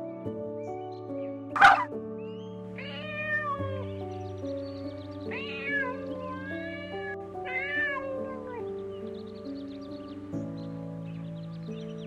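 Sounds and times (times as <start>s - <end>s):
background music with held notes: 0.0s - 12.0s
cat meowing: 2.8s - 3.9s, 5.2s - 8.6s.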